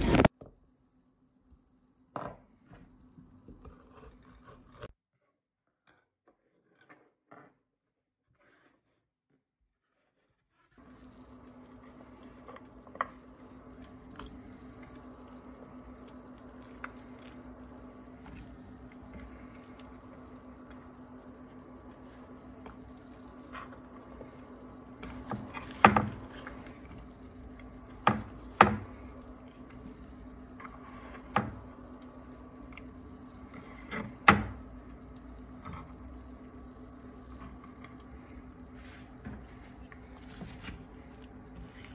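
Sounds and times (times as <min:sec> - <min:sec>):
steady low hum: 0:10.7 - 0:41.9.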